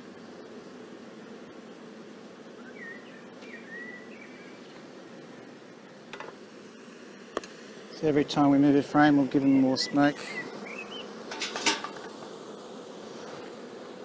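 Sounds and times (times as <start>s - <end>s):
honeybees humming: 0.0s - 14.0s
bird chirping: 2.6s - 4.6s, 9.4s - 11.2s.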